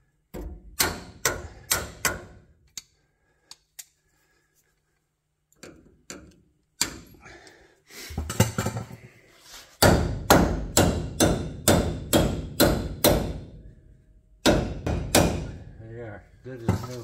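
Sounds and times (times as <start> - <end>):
hammer striking steel: 0.8 - 2.4, 9.8 - 13.6, 14.4 - 15.6.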